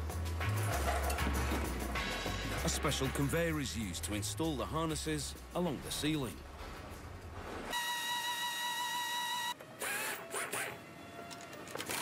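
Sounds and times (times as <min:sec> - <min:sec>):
small machine whining: 0:07.7 - 0:11.4.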